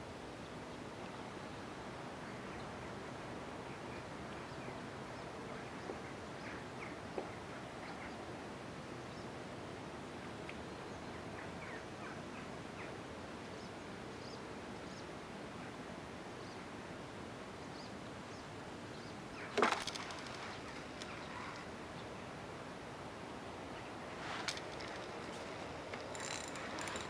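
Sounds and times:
soft outdoor hiss: 0:00.0 - 0:27.0.

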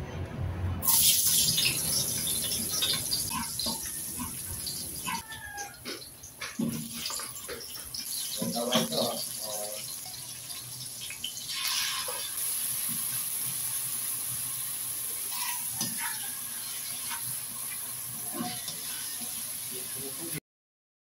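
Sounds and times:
meat sizzling in a wok: 0:00.8 - 0:05.6, 0:06.5 - 0:20.4
spatula scraping a wok: 0:11.5 - 0:14.0, 0:15.1 - 0:19.7.

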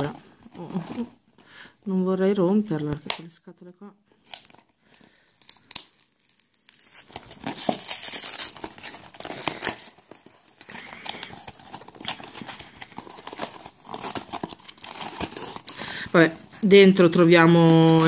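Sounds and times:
cardboard flap tearing open: 0:04.2 - 0:15.8.

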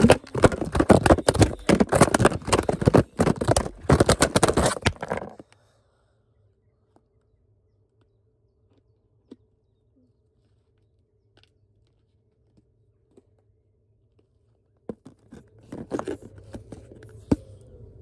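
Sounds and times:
handling clicks scrapes and rustling: 0:00.0 - 0:05.4, 0:15.0 - 0:17.4.

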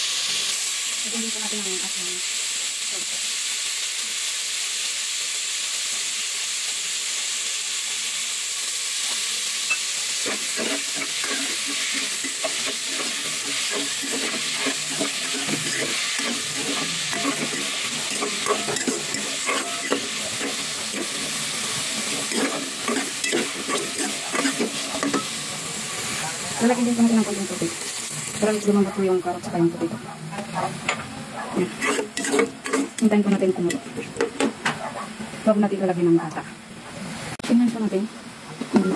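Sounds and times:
vegetables sizzling in a pot: 0:00.0 - 0:38.9
metal spatula scraping a pot: 0:09.7 - 0:25.3, 0:31.6 - 0:34.5.

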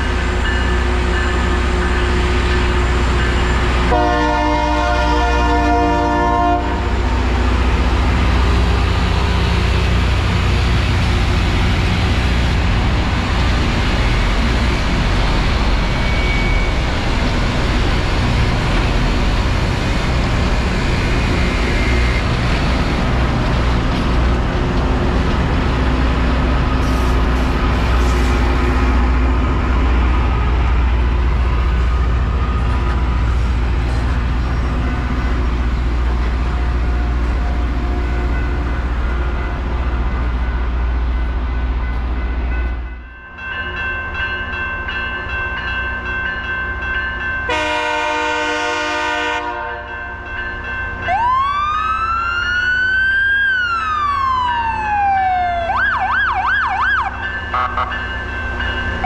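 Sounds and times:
rail grinder rumbling: 0:00.0 - 0:42.9
train horn blast: 0:03.9 - 0:07.0, 0:47.5 - 0:50.0, 0:57.5 - 0:58.0.

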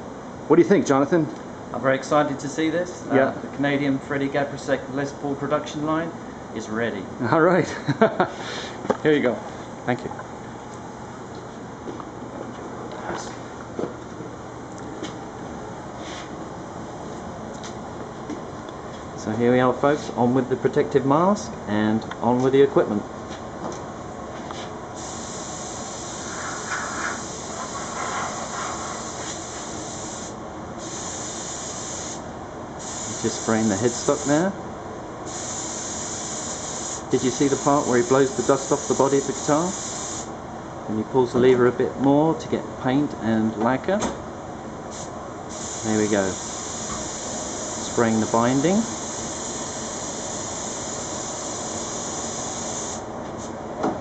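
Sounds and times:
spray gun hissing: 0:25.0 - 0:32.2, 0:32.8 - 0:34.4, 0:35.3 - 0:40.3, 0:44.9 - 0:53.0.

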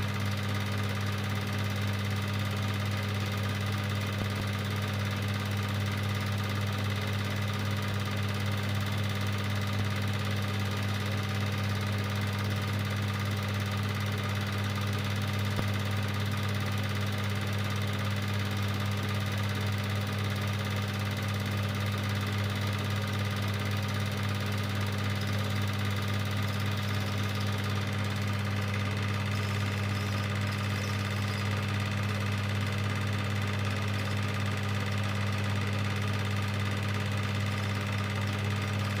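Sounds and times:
film projector motor hum: 0:00.0 - 0:39.0
projector whirring hiss: 0:25.2 - 0:36.3.

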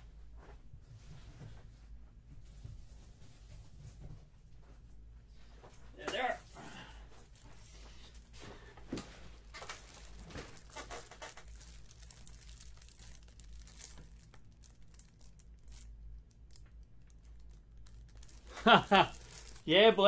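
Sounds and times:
plastic wrapping rustling: 0:06.0 - 0:20.0.

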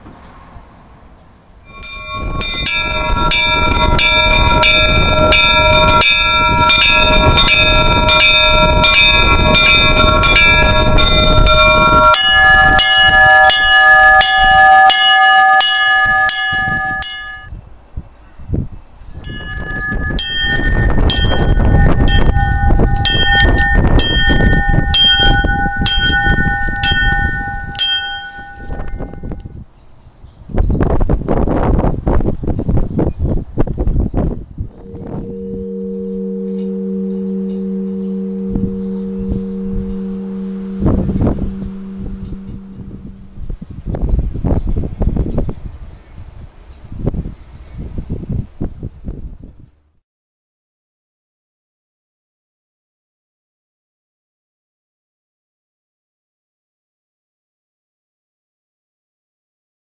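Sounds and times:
church bells pealing: 0:01.7 - 0:17.5, 0:19.2 - 0:29.4, 0:34.8 - 0:43.6.

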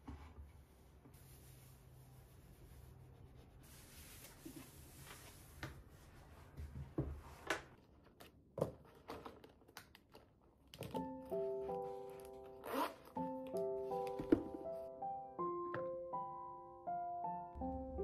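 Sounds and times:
cloth wiping a desktop: 0:00.1 - 0:07.4
gentle music: 0:10.8 - 0:18.0.

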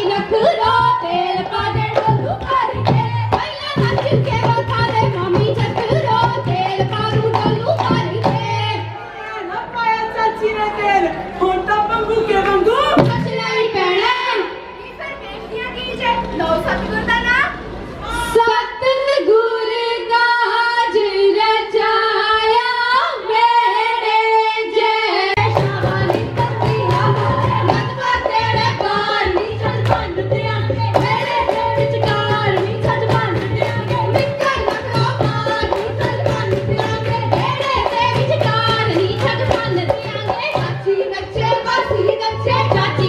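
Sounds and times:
drum beat: 0:00.0 - 0:08.8, 0:25.4 - 0:43.0
women singing amplified: 0:00.0 - 0:17.0, 0:18.0 - 0:43.0
rhythmic hand clapping: 0:25.4 - 0:40.8.

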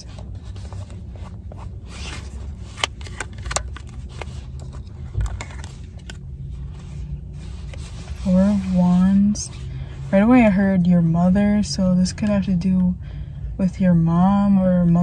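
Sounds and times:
low steady hum: 0:00.0 - 0:15.0
card scraping rustles: 0:00.1 - 0:08.9.

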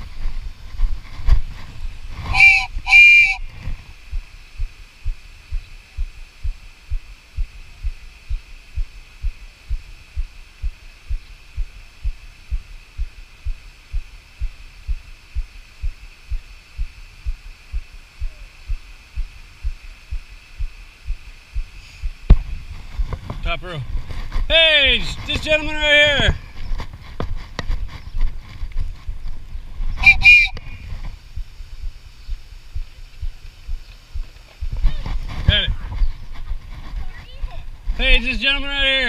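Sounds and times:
faint high hum: 0:00.0 - 0:39.0
short low thumps: 0:00.8 - 0:26.5.

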